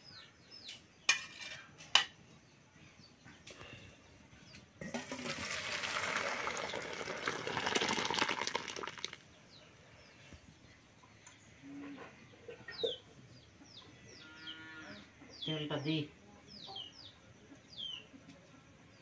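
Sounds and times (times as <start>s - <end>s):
small birds chirping: 0.0s - 4.8s, 5.5s - 19.0s
lentil soup pouring into steel bowl: 4.8s - 9.2s
chicken clucking: 11.6s - 13.9s.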